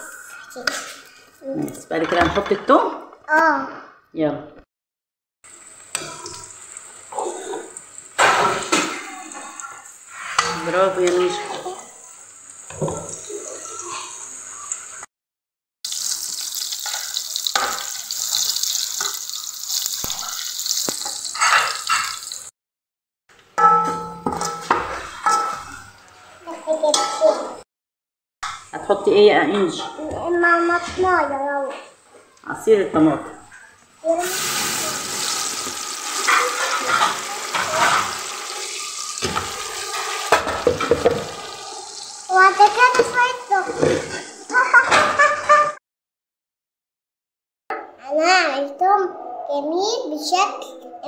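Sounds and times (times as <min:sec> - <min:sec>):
food sizzling in oil: 0:05.5 - 0:15.1, 0:15.8 - 0:22.5, 0:34.0 - 0:44.5
juice pouring and splashing: 0:15.9 - 0:22.5, 0:34.2 - 0:42.9
metal spoon stirring in pot: 0:16.5 - 0:22.4.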